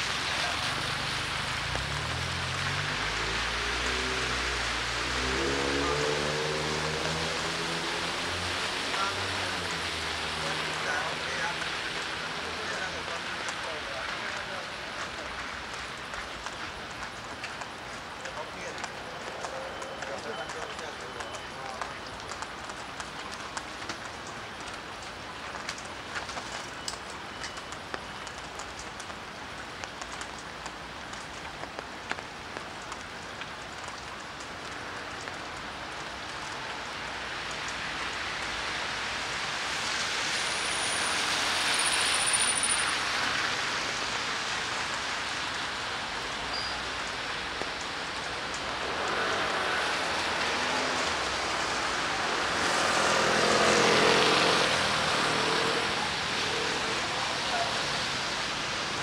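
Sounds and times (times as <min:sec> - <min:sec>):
steady rain falling: 0:00.0 - 0:59.0
tyres hissing on wet street: 0:00.0 - 0:59.0
raindrops ticking: 0:00.1 - 0:59.0.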